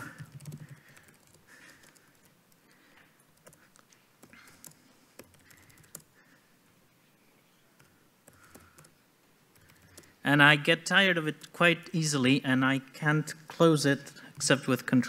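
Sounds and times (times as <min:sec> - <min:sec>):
laptop keystrokes: 0:00.0 - 0:02.6, 0:03.4 - 0:06.1, 0:07.8 - 0:10.2.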